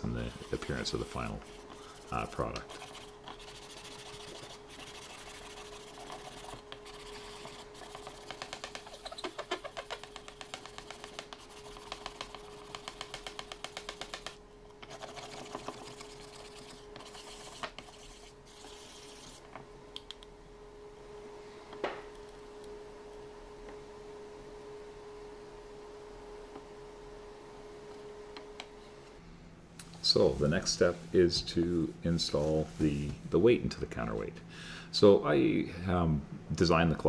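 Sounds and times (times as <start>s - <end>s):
sandpaper rubbing on wood: 0.2s - 12.0s.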